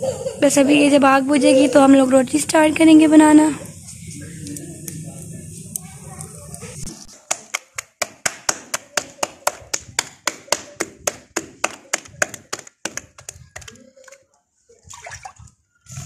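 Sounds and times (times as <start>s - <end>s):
rhythmic hand claps: 7.3s - 13.7s.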